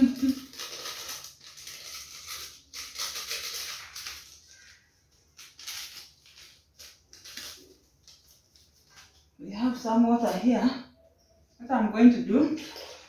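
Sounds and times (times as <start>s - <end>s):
plastic sachet crinkling: 0.0s - 9.3s.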